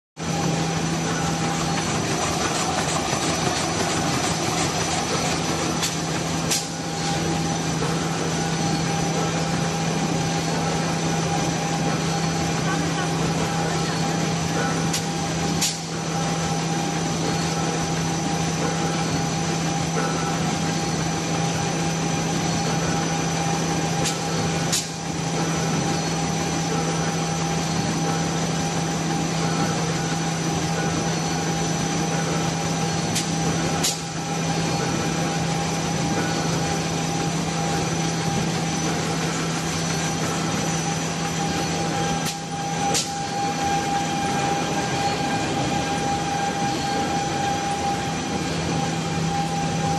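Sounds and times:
packing machinery humming: 0.2s - 49.9s
sharp machine clicks: 1.2s - 7.2s.

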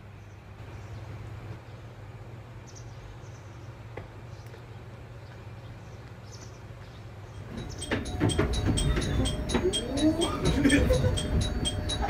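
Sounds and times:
steady low hum: 7.3s - 12.0s
faint high chirps: 7.4s - 12.0s.

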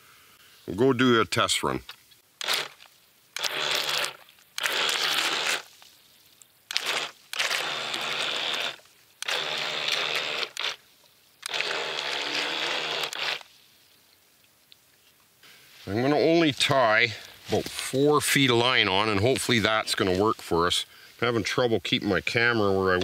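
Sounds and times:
electric motors whirring: 3.4s - 5.6s, 6.7s - 10.8s, 11.4s - 13.4s.

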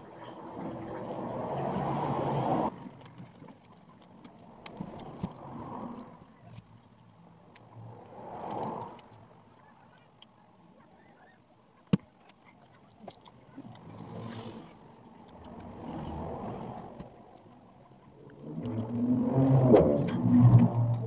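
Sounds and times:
quiet eating at a table: 3.0s - 17.2s
low rumbling swells: 15.3s - 21.0s.

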